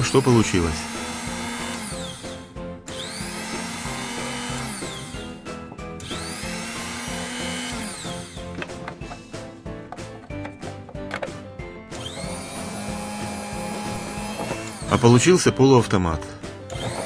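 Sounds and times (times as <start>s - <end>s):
drill motor whine: 0.0s - 8.5s, 11.9s - 15.2s, 16.7s - 17.0s
background music: 0.0s - 17.0s.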